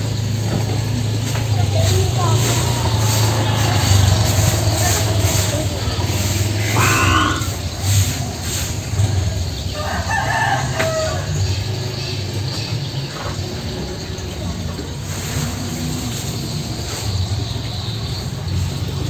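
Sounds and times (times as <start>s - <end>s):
steady low rumble: 1.0s - 9.7s
rooster crowing: 2.5s - 7.5s, 9.7s - 11.5s.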